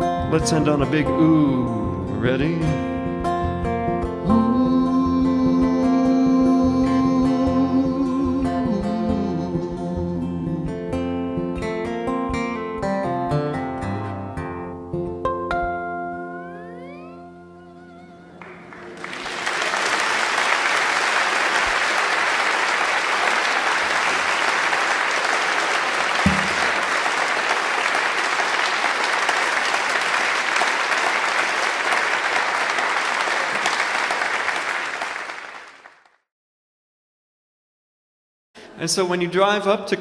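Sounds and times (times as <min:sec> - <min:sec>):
audience applauding: 0:18.4 - 0:36.1
single thump: 0:26.2 - 0:26.8.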